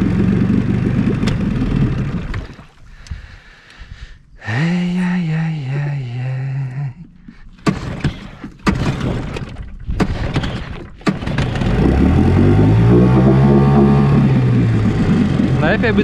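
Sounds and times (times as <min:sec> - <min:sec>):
outboard motor running: 0:00.0 - 0:04.1, 0:06.7 - 0:16.0
outboard motor coughing: 0:11.5 - 0:16.0.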